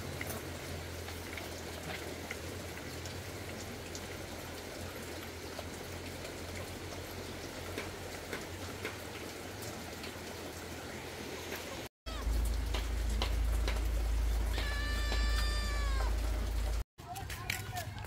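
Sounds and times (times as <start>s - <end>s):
rain pattering: 0.0s - 18.0s
raindrop clicks: 11.5s - 18.0s
low steady hum: 12.2s - 16.8s.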